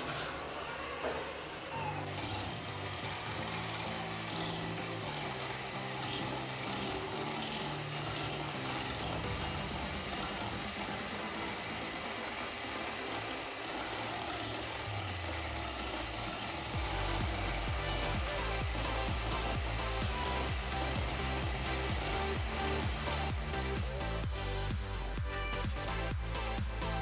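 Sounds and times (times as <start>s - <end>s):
electric hand mixer running: 0.0s - 27.0s
background music: 2.0s - 14.1s, 16.6s - 27.0s.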